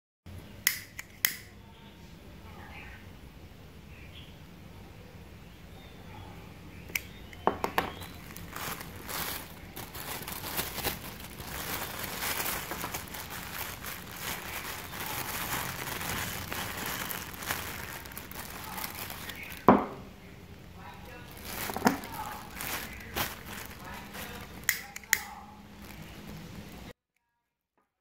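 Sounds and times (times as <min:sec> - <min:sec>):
plastic bag crinkling: 0:07.4 - 0:19.9, 0:20.5 - 0:26.9.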